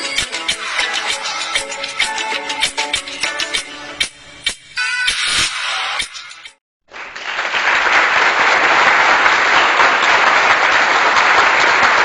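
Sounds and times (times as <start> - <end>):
large audience applause: 6.9 - 12.0.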